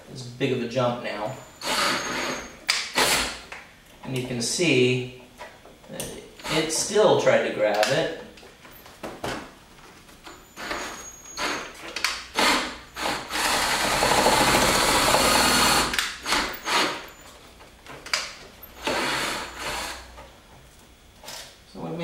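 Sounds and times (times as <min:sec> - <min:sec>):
power drill drilling: 0:01.6 - 0:03.4, 0:10.6 - 0:11.7, 0:12.4 - 0:17.1, 0:18.8 - 0:20.1.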